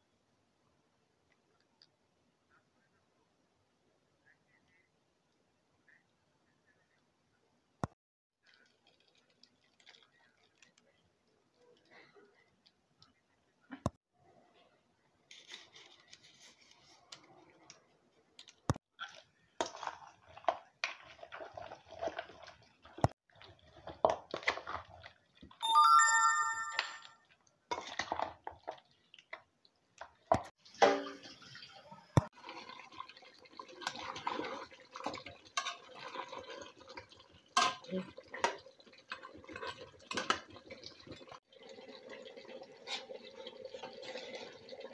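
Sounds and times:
food mixed by hand in pot: 0:08.4 - 0:13.9, 0:14.5 - 0:25.6, 0:27.2 - 0:44.9.

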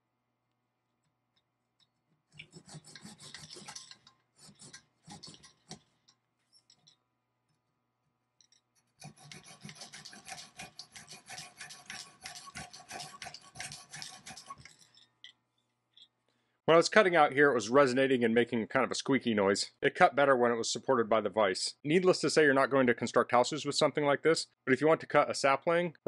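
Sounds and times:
saw rasping through wood: 0:02.3 - 0:05.8, 0:08.8 - 0:14.9.

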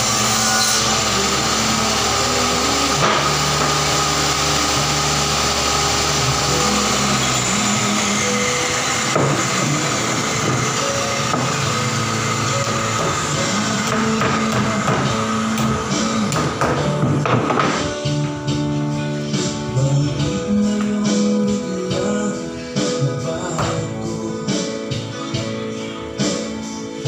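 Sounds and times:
table saw cutting wood: 0:00.0 - 0:20.0.

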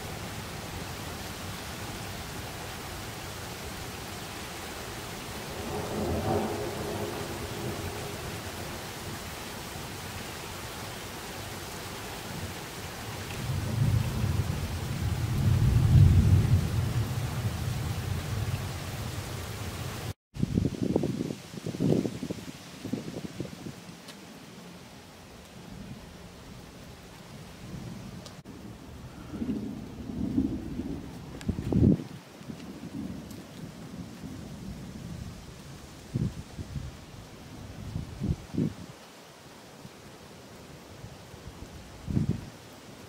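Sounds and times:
steady rain hiss: 0:00.0 - 0:43.0
rolling thunder: 0:05.4 - 0:09.3, 0:13.4 - 0:19.3, 0:28.5 - 0:35.3.

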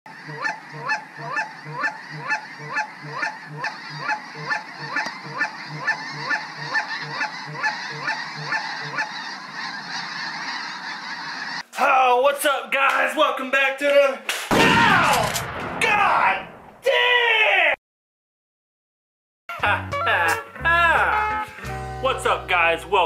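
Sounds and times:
chorus of geese: 0:00.1 - 0:11.6
goose high falling honk: 0:00.1 - 0:11.6.

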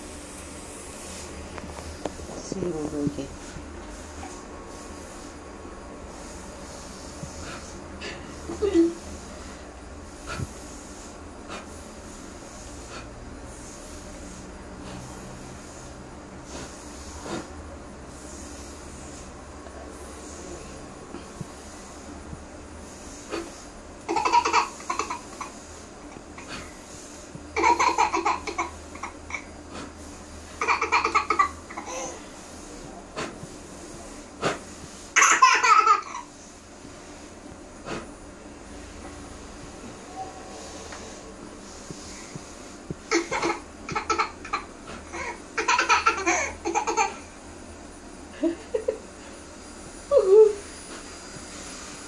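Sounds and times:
toddler laughing: 0:24.1 - 0:25.5, 0:27.6 - 0:29.4, 0:30.6 - 0:32.2, 0:35.2 - 0:36.3, 0:43.1 - 0:47.3.

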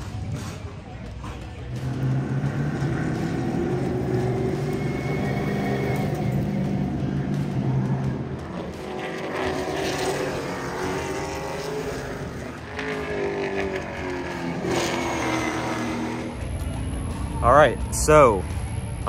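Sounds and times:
race car engines passing: 0:00.0 - 0:19.0.

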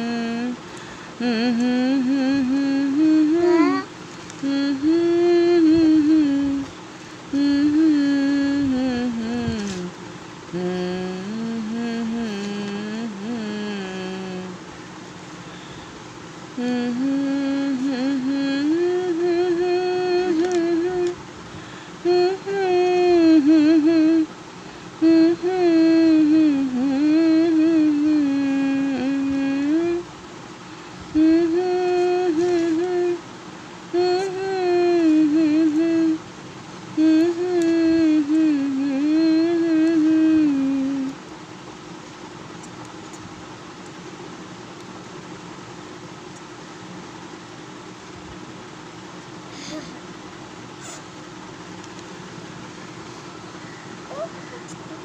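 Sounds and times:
woman humming: 0:00.0 - 0:06.7, 0:07.3 - 0:14.6, 0:16.6 - 0:21.2, 0:22.0 - 0:24.3, 0:25.0 - 0:30.1, 0:31.2 - 0:33.2, 0:34.0 - 0:36.2, 0:37.0 - 0:41.2, 0:49.5 - 0:50.1, 0:54.1 - 0:55.0
person singing held notes: 0:00.0 - 0:10.0, 0:31.2 - 0:33.2.

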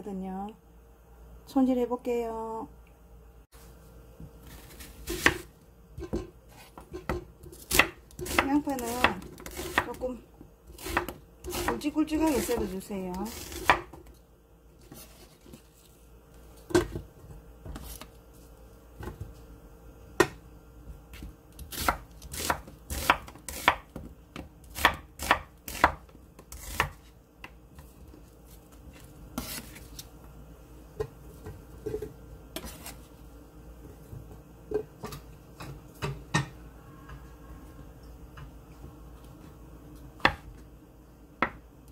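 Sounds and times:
knife chopping on wooden board: 0:05.0 - 0:09.9, 0:13.3 - 0:14.1, 0:21.1 - 0:27.6, 0:40.2 - 0:40.5.

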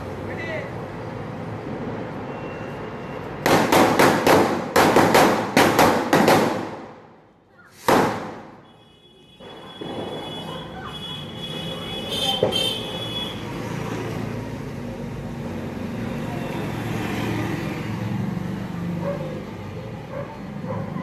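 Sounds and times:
firecrackers banging: 0:03.4 - 0:08.7, 0:09.4 - 0:10.8.

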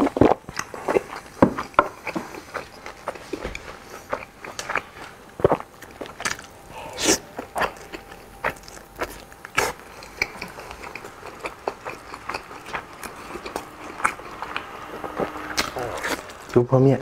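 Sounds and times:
crunchy chewing: 0:00.0 - 0:17.0
wet mouth clicks: 0:04.1 - 0:16.4.

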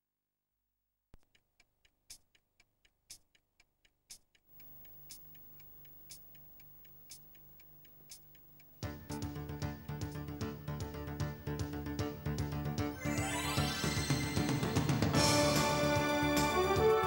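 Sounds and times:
clock ticking: 0:01.2 - 0:12.5.

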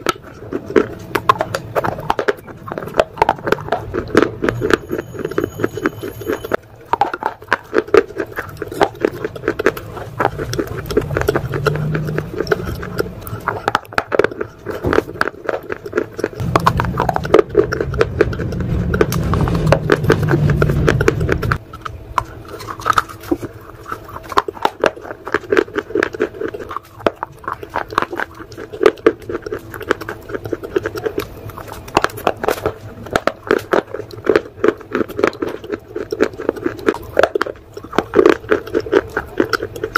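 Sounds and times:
rock crunching between teeth: 0:00.0 - 0:05.7, 0:06.8 - 0:39.9
low rumble: 0:16.3 - 0:24.7.

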